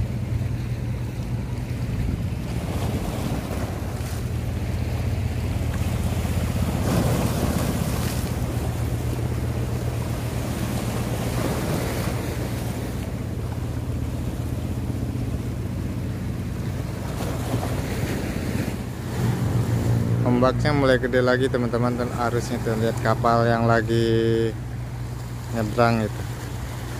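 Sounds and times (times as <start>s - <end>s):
wind rumbling on microphone: 0.0s - 20.3s
waves breaking on rocky shore: 0.0s - 26.9s.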